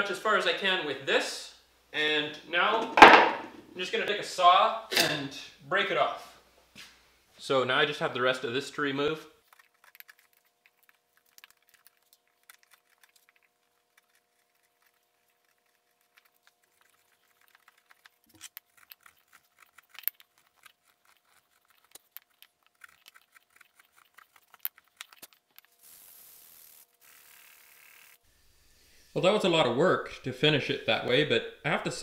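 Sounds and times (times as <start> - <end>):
crisp clicks of shavings: 9.4 - 26.2.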